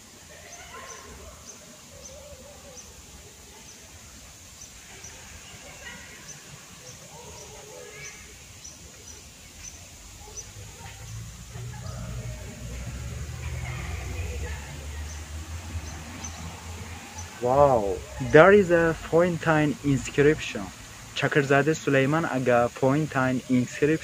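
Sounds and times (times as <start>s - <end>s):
faint distant voices: 0.0s - 24.0s
small bird chirping: 4.5s - 12.0s.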